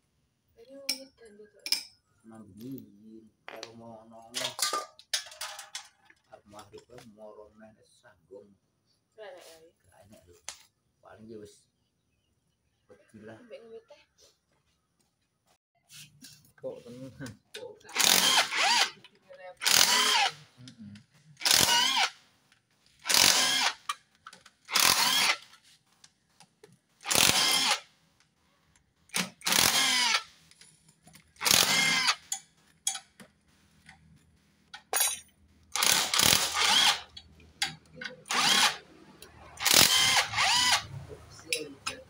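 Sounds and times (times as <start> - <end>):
cordless power driver whining: 17.9 - 20.4, 21.4 - 22.1, 23.0 - 23.9, 24.7 - 25.5, 27.0 - 27.8, 29.2 - 30.3, 31.4 - 32.2, 35.8 - 37.1, 38.2 - 38.8, 39.6 - 41.0.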